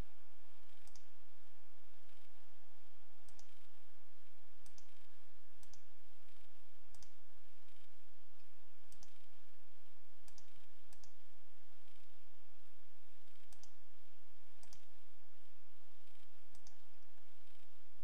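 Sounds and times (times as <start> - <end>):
steady low hum: 0.0 - 18.0
computer mouse clicking: 0.7 - 1.1, 3.3 - 3.7, 4.6 - 9.3, 10.2 - 11.2, 13.3 - 13.8, 14.6 - 14.9, 16.0 - 17.6.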